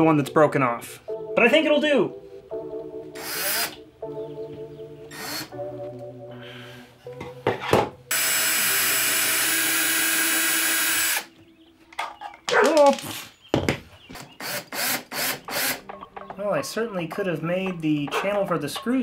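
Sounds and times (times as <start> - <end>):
cordless drill running: 3.2 - 3.7, 5.1 - 5.5, 8.1 - 11.3, 14.4 - 15.8.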